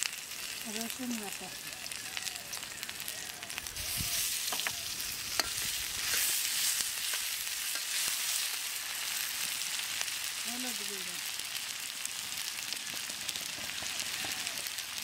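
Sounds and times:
onions sizzling in a pan: 0:00.0 - 0:15.0
metal spoon clinking against pan: 0:05.3 - 0:06.3.

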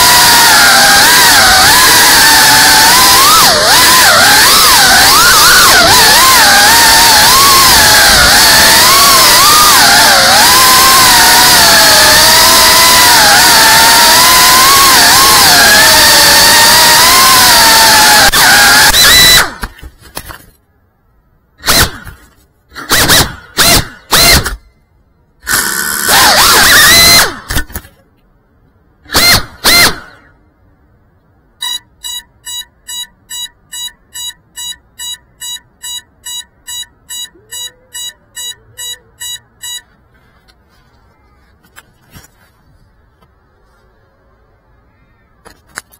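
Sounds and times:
drone motors whining: 0:00.0 - 0:19.7, 0:21.6 - 0:24.6, 0:25.4 - 0:27.7, 0:29.1 - 0:30.3, 0:31.6 - 0:40.0
drone beeper beeping: 0:31.6 - 0:39.9.

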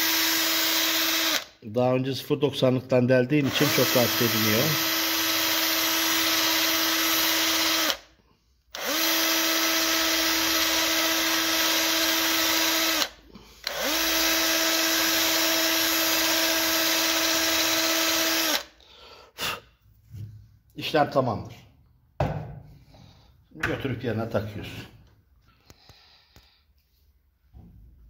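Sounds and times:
cordless drill spinning: 0:00.0 - 0:01.6, 0:03.4 - 0:08.1, 0:08.7 - 0:18.8.

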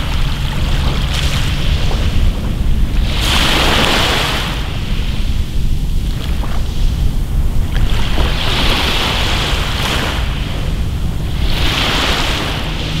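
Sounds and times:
steady low rumble: 0:00.0 - 0:13.0
waves washing on pebble beach: 0:11.4 - 0:13.0.

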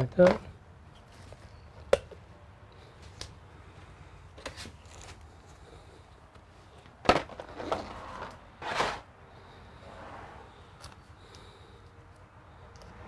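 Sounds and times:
rustling: 0:04.4 - 0:06.0
short scrape: 0:07.6 - 0:09.1.

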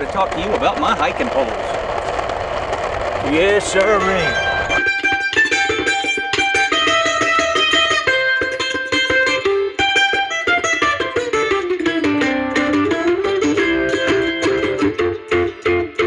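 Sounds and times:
plucked strings music: 0:03.7 - 0:16.0.

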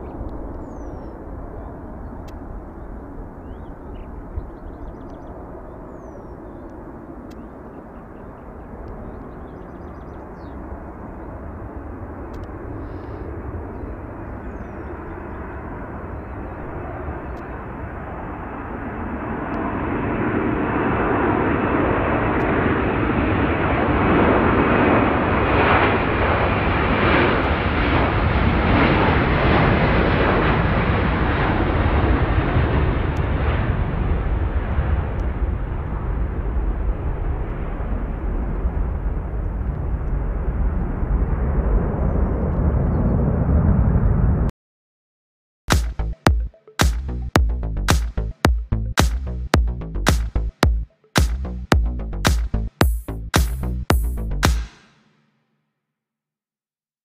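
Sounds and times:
jet engines at take-off power: 0:00.0 - 0:44.5.

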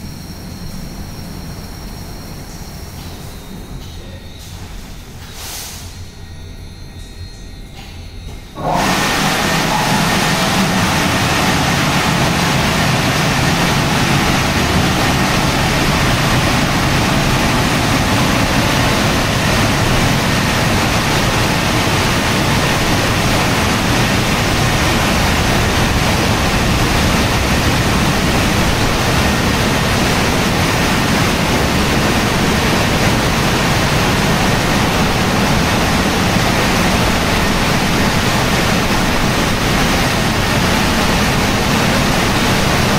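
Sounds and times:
car wash blowers blowing air: 0:07.8 - 0:42.9.

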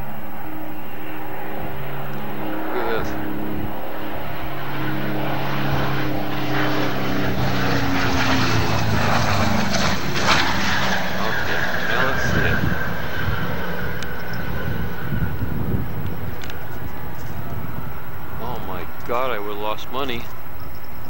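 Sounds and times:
propeller plane engine droning: 0:00.0 - 0:21.0.

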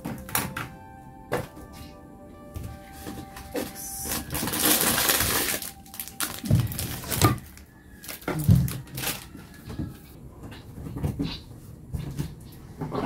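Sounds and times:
rustling in cardboard box: 0:02.7 - 0:09.6.

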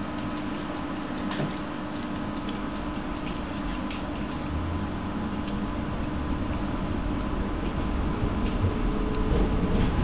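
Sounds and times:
tram hum and rumble: 0:03.8 - 0:10.0.

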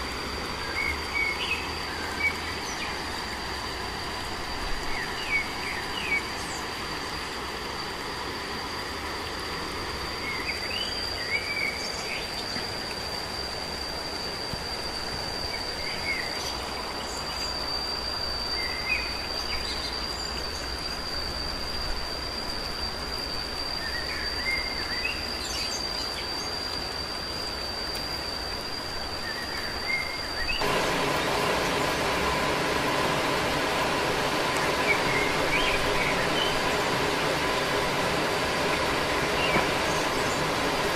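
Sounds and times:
constant hiss: 0:00.0 - 0:40.9
high insect whine: 0:00.0 - 0:40.9
even rushing noise: 0:30.6 - 0:40.9
bird chirps: 0:34.0 - 0:40.9.

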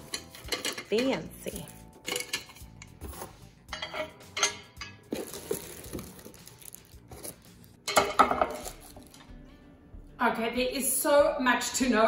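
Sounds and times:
wire trivet clinking on pan: 0:00.0 - 0:01.3, 0:02.1 - 0:02.9
plastic wrap crinkling: 0:05.1 - 0:07.8.

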